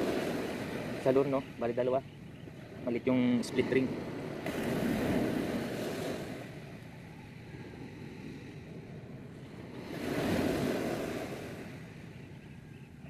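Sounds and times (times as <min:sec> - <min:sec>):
sea waves washing on shore: 0:00.0 - 0:13.0.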